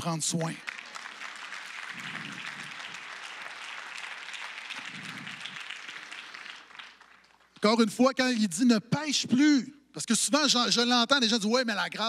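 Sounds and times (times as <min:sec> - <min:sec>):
congregation clapping: 0:00.0 - 0:08.1.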